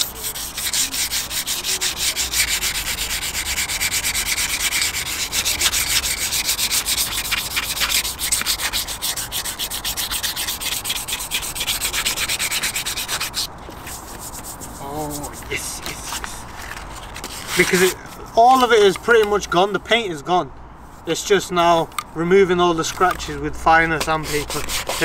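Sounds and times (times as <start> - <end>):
sandpaper rasping on metal rim: 0.0 - 15.8, 17.2 - 18.9, 24.0 - 25.0.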